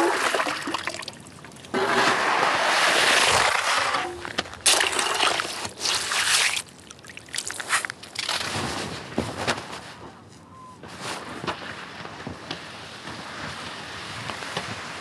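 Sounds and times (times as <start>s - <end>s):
ice chunks sloshing in water: 0.0s - 8.6s.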